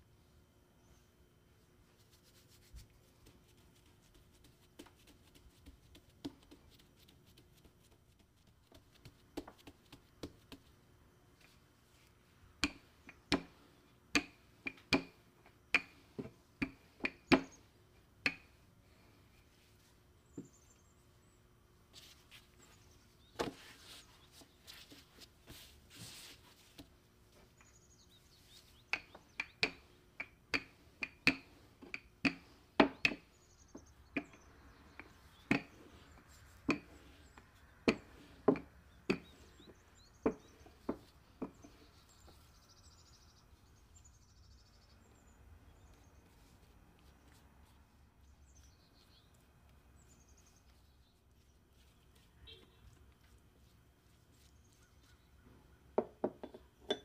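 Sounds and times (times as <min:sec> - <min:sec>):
rubbing noise: 0:01.9 - 0:10.7.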